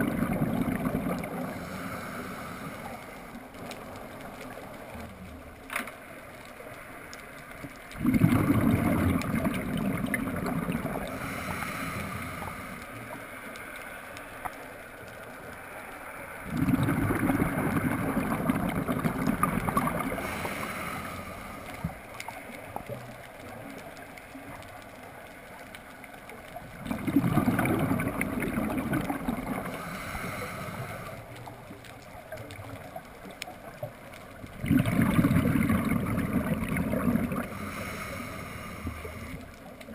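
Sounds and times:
scuba exhaust bubbles gurgling: 0.0 - 5.6, 7.7 - 13.3, 16.4 - 25.2, 26.0 - 39.9.

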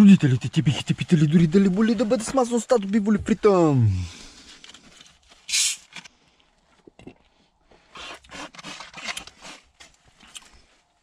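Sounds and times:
handling rustling and scraping: 0.5 - 3.4, 4.2 - 6.9, 7.8 - 11.0
bottle opening gas hiss: 5.5 - 6.0.

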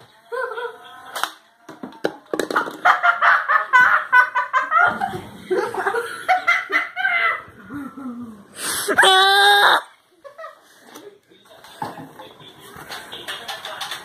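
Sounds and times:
children laughing and giggling: 0.3 - 1.2, 2.8 - 10.9.

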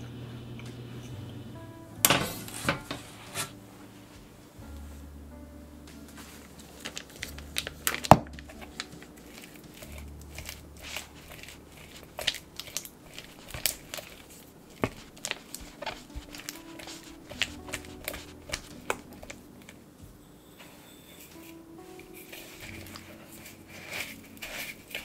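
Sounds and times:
spatula mashing cream cheese: 6.8 - 19.4, 22.2 - 25.0.

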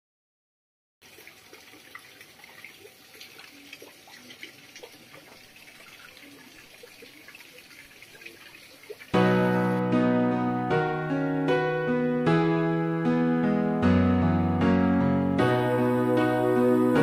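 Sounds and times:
trickling bubbling water: 1.0 - 9.8.

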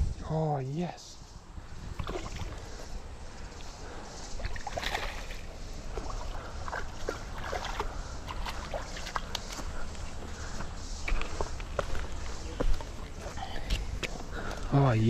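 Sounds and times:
stream water running: 0.0 - 15.0
light water splashes: 1.8 - 10.0.

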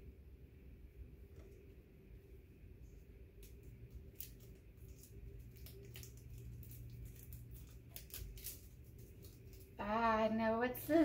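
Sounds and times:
gift wrapping crackling: 3.4 - 9.8.

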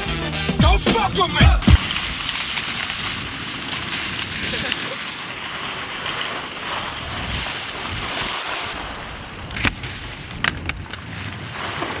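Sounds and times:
skis hissing over snow: 0.0 - 12.0
sharp knock: 0.9 - 1.9
wind rushing over microphone: 6.8 - 12.0.

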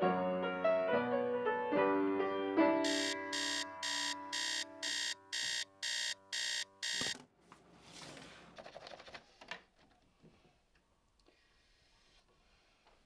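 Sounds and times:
electronic alarm beeping: 2.8 - 7.2.

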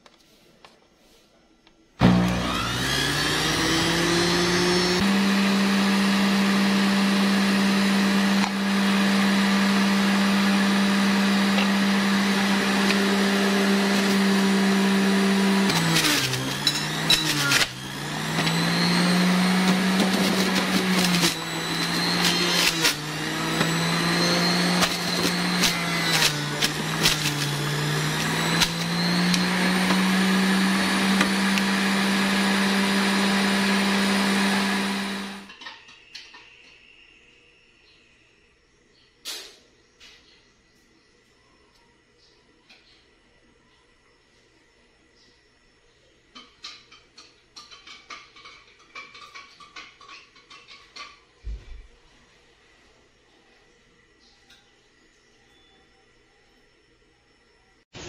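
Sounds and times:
juicer motor humming: 2.0 - 35.6.

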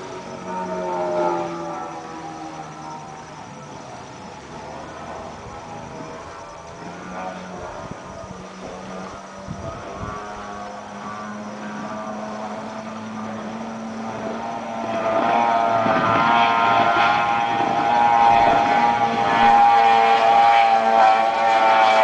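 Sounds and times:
speedboat engine droning: 0.0 - 22.0.

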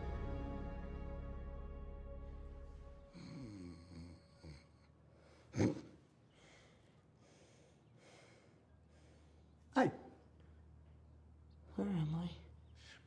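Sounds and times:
music: 0.0 - 3.6
person snoring: 3.1 - 4.9
soft breaths: 3.1 - 9.7.

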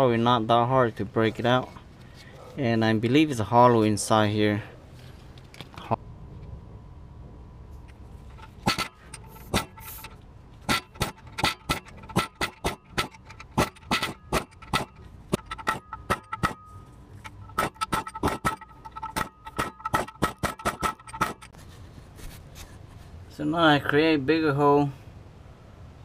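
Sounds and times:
air hammer chiselling metal: 8.3 - 21.6.

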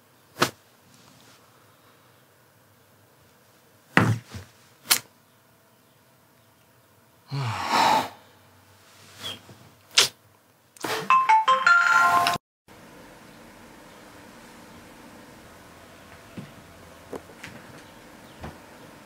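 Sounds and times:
person exhaling: 7.3 - 8.5
smartphone message alert jingle: 11.1 - 12.4.

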